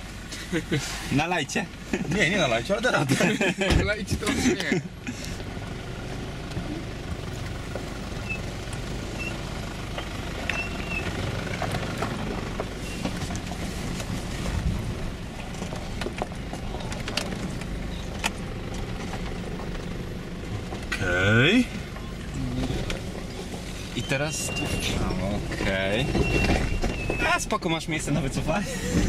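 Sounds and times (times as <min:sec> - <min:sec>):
diesel engine running at low revs: 0:00.0 - 0:29.0
knocks and creaks over rocks: 0:10.0 - 0:20.0, 0:21.9 - 0:27.3.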